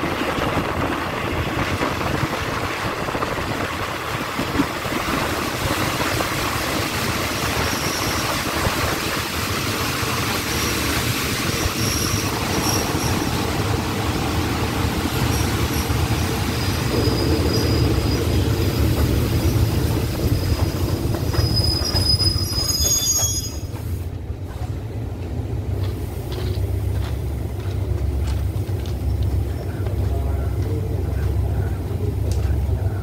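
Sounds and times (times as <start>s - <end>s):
train brakes squealing: 7.4s - 9.0s, 10.4s - 13.5s, 15.3s - 24.0s
low engine rumble: 23.9s - 33.0s.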